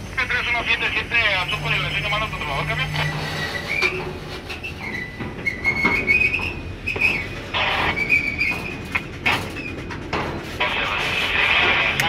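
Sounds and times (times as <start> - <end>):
train rumbling: 0.0 - 12.0
wheels clacking on track: 0.0 - 12.0
train wheels squealing: 1.0 - 10.0.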